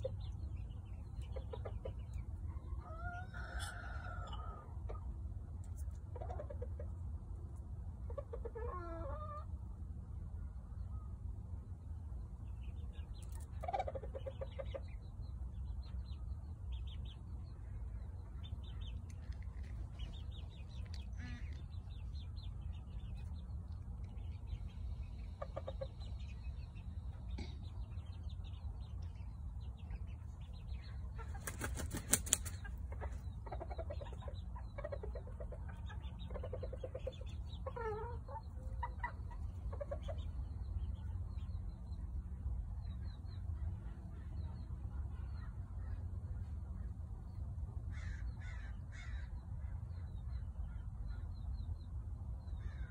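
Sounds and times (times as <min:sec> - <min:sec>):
wing flapping: 0:31.3 - 0:32.7.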